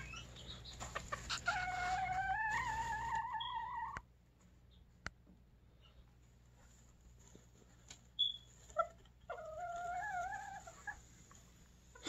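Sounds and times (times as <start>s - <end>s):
chicken calling: 0.0s - 4.0s, 8.2s - 11.1s.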